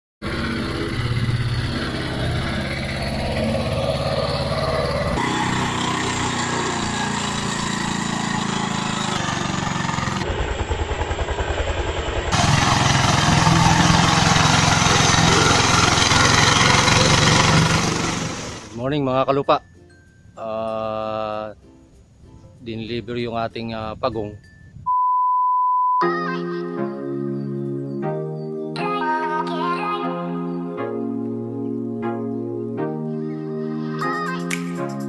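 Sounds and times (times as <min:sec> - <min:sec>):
small tractor engine running: 0:00.2 - 0:18.8.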